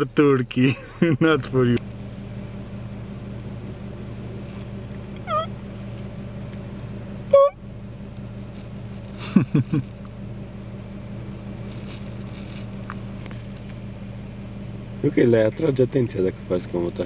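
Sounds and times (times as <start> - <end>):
truck engine idling: 0.0 - 17.0
squeaky hunting call: 5.2 - 5.6.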